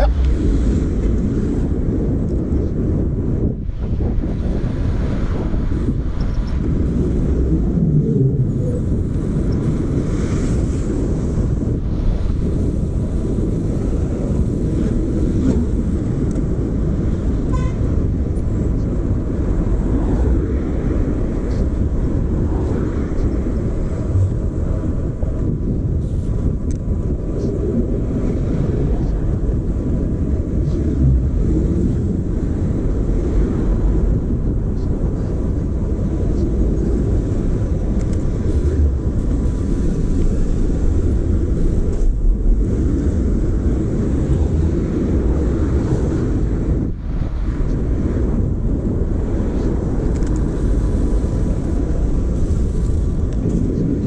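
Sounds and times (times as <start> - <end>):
city traffic noise: 0.0 - 54.0
wind rumble on microphone: 0.0 - 54.0.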